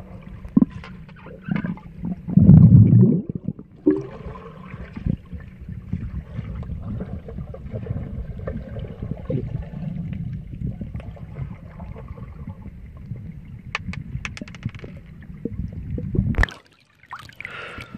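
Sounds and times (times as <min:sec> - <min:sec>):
muffled underwater churning: 0:00.0 - 0:13.7
sharp clicks and pops: 0:13.8 - 0:15.1.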